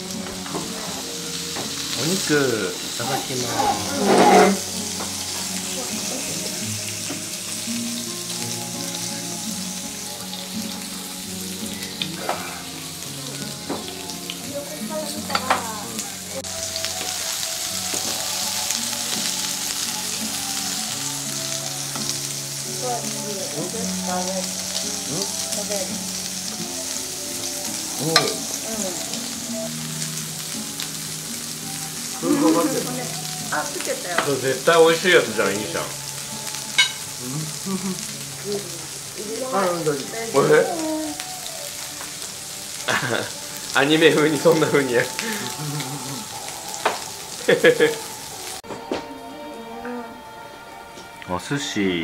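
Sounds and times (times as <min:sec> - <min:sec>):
food sizzling: 0:00.0 - 0:52.0
soft background music: 0:00.0 - 0:52.0
tableware clinking: 0:03.5 - 0:04.7, 0:15.2 - 0:15.7, 0:28.1 - 0:28.5, 0:36.7 - 0:37.1.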